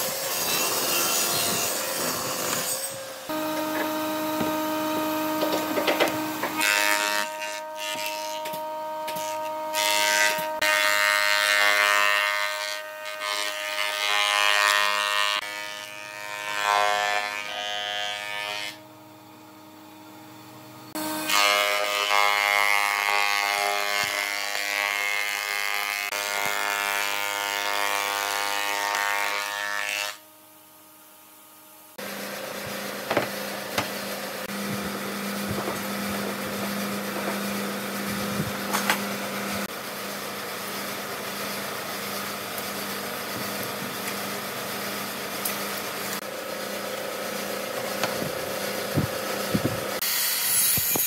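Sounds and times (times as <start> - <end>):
planer machine whine: 0.0 - 10.8, 32.0 - 50.0
planer cutting wood: 0.0 - 18.8, 20.9 - 30.2, 32.0 - 51.0.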